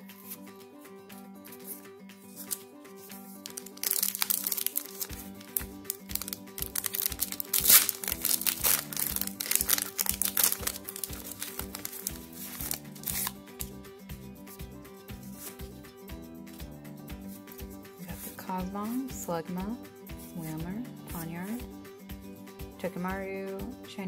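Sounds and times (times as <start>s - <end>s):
background music with steady beat: 0.0s - 24.0s
foil wrapper crinkling: 2.4s - 2.6s, 3.3s - 13.7s.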